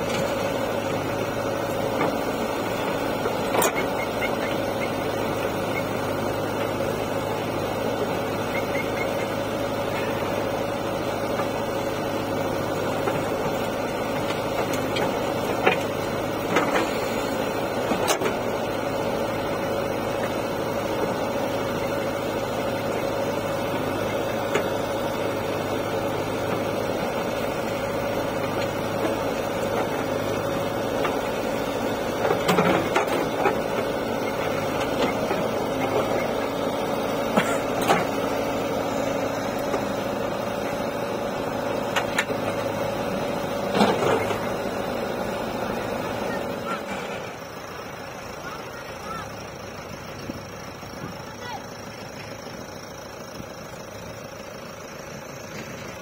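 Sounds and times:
diesel engine running under load: 0.0 - 56.0
knocks and clanks of digger bucket: 1.6 - 5.9, 12.8 - 18.8, 26.1 - 41.0, 41.6 - 45.0.

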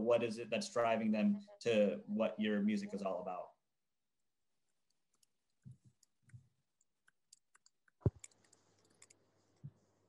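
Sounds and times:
faint clicks and knocks: 4.9 - 9.9.

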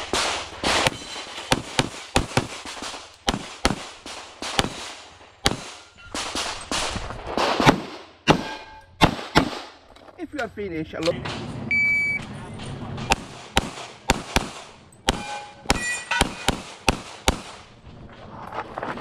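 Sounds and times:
pistol shots: 0.0 - 9.8, 13.1 - 17.7.

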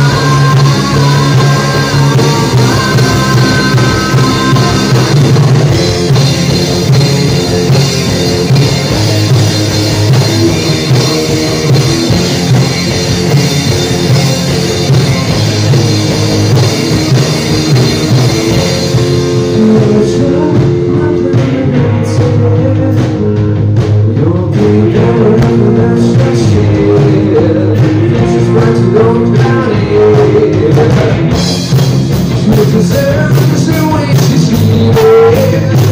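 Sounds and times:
bass guitar: 0.0 - 35.9
drum kit: 0.0 - 35.9
electric guitars: 0.0 - 35.9.

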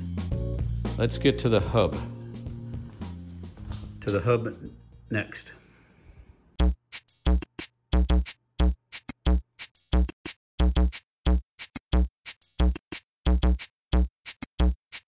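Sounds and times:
electronic music with drum-machine beat: 0.0 - 1.1, 6.6 - 15.0.

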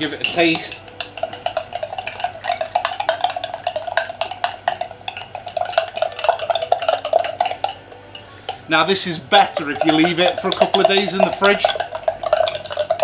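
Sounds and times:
spoon clinking against glass: 0.0 - 13.0.

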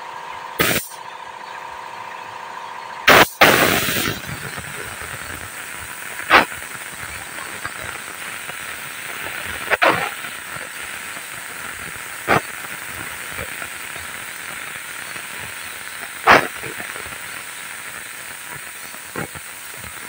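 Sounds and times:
steady hum: 0.0 - 20.0
paint spray gun hissing: 0.6 - 1.0, 3.1 - 20.0
short air blasts: 0.6 - 1.0, 3.1 - 7.0, 7.7 - 13.3, 16.0 - 16.8.

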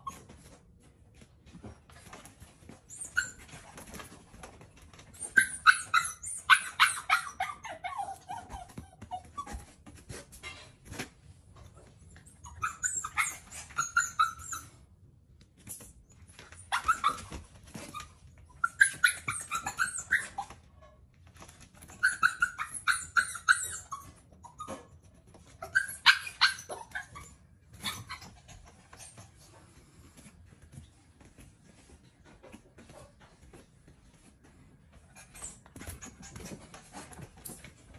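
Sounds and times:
puppy whining and yipping: 0.0 - 0.6, 2.0 - 10.6, 11.8 - 14.9, 15.7 - 29.4, 35.1 - 37.9.

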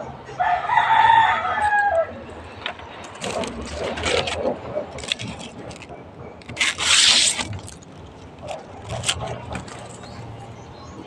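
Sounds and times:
knife scraping leaf midribs: 3.2 - 7.8, 8.4 - 10.1.

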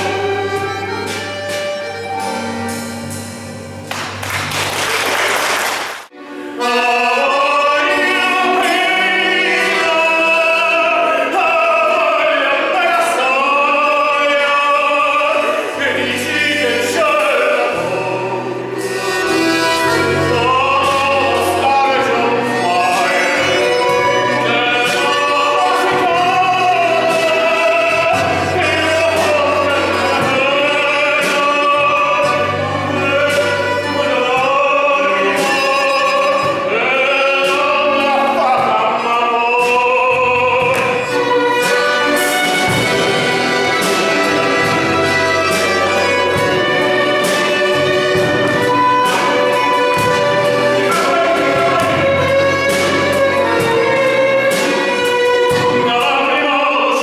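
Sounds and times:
violin: 0.0 - 4.6, 6.0 - 57.0
accordion: 0.0 - 4.9, 6.1 - 57.0
man singing with vibrato: 6.1 - 57.0
guitars: 16.1 - 57.0.

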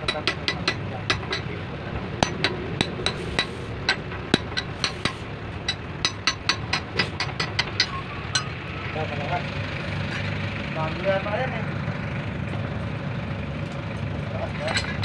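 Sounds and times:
steel rod tapping metal: 0.0 - 1.6, 2.2 - 8.6
low engine hum: 0.0 - 15.0.

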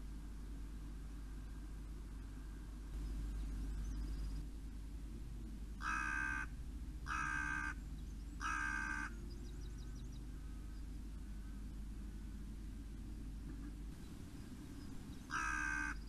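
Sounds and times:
crow cawing: 5.8 - 6.5, 7.1 - 7.8, 8.4 - 9.2, 15.3 - 16.0.

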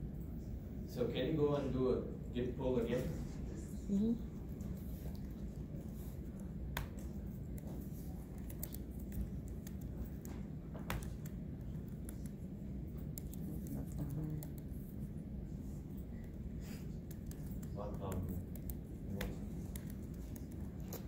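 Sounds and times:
low room hum: 0.0 - 21.0
small clicks and taps: 6.3 - 14.8.

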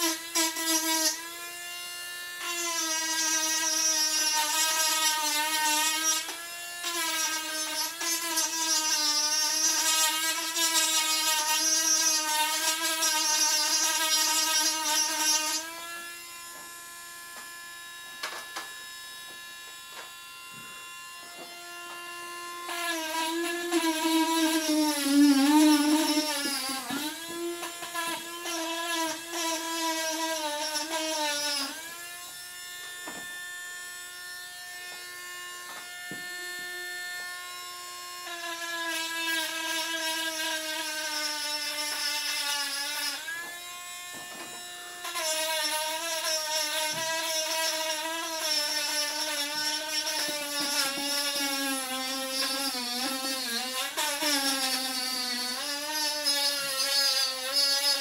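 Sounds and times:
rotary tool grinding wood: 0.0 - 58.0.

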